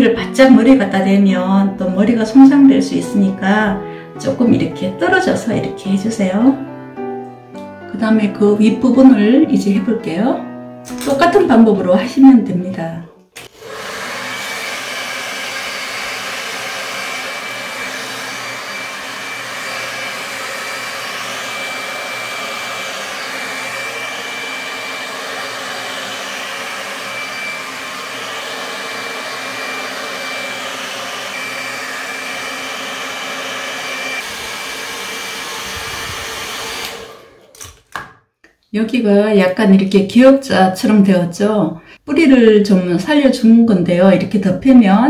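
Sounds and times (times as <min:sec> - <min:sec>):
hair dryer running: 0:13.4 - 0:38.1.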